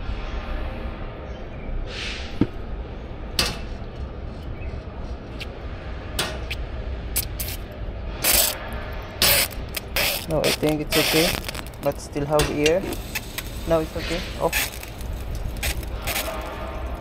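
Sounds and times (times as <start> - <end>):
low engine rumble: 0.0 - 17.0
short hisses: 1.9 - 2.4.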